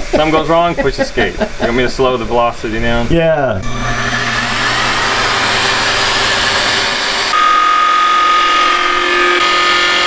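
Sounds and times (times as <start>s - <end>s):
steady high whine: 0.0s - 10.0s
milling machine cutting metal: 3.6s - 10.0s.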